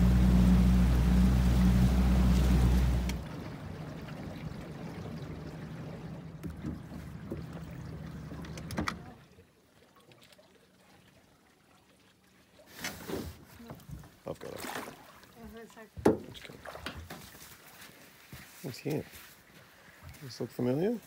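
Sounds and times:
boat bow knocking on shore: 0.0 - 9.1, 16.0 - 16.3
boat motor running: 0.0 - 9.2
water against hull: 0.0 - 21.0.

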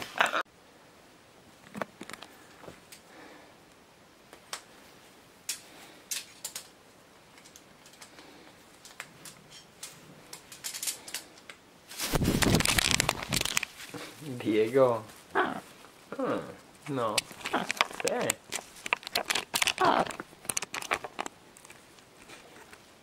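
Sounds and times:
loud rustling flurry: 11.9 - 15.8.

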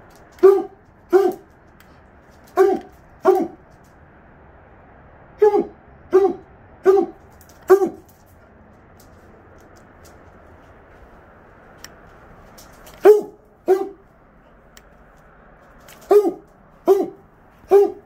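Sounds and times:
dog barking: 0.4 - 1.5, 2.5 - 3.6, 5.4 - 8.1, 13.0 - 14.6, 15.9 - 18.0.

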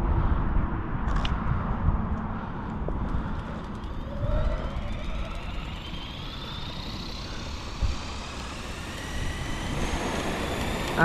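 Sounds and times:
helicopter rotor whine spooling up: 2.6 - 11.0.

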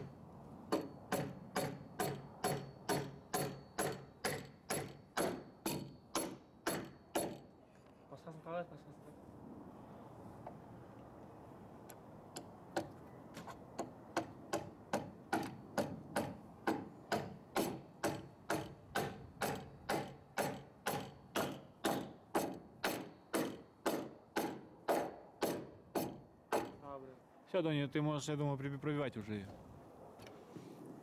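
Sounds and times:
hammer driving nail into wood: 0.7 - 7.4, 12.4 - 26.8.

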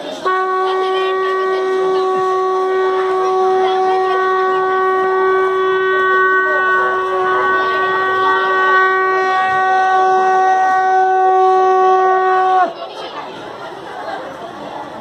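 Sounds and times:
loud horn-like tone: 0.2 - 12.8.

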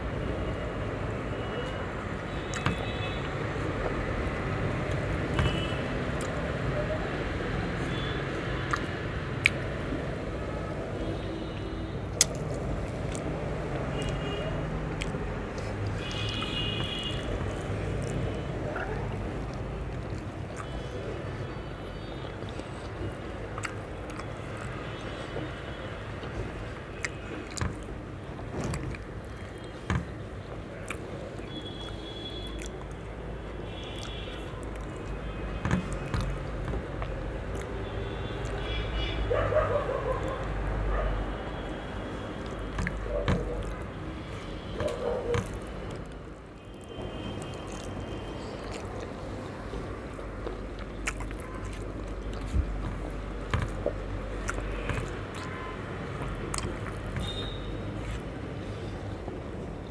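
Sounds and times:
chewing and mouth sounds: 8.6 - 10.0, 12.1 - 14.2, 14.9 - 21.5, 22.2 - 25.2, 26.2 - 38.8, 42.1 - 58.3
fingers squishing food: 17.2 - 20.9, 30.8 - 33.1, 42.4 - 49.5, 50.2 - 58.3.

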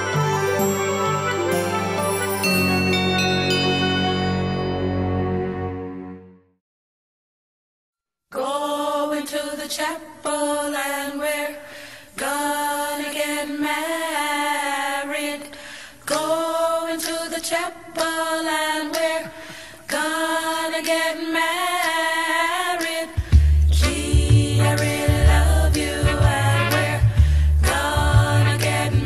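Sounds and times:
deep bass beat: 23.2 - 29.0.

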